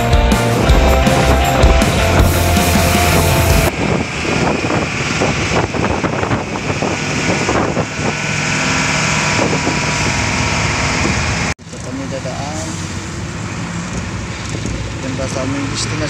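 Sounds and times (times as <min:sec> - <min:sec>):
wind buffeting microphone: 0:00.0 - 0:11.5
truck engine and road noise: 0:00.0 - 0:16.0.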